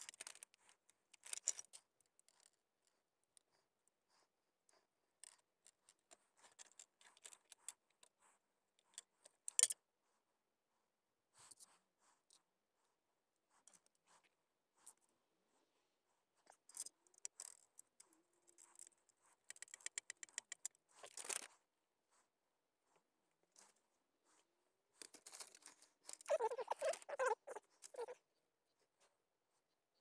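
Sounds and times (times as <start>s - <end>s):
squeaks: 26.1s - 28.2s.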